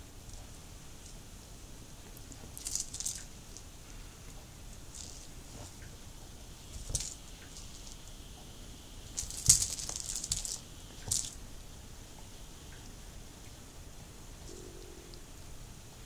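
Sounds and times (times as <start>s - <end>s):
ball toy clattering: 2.4s - 3.7s, 4.8s - 5.8s, 6.6s - 8.2s, 9.1s - 11.4s.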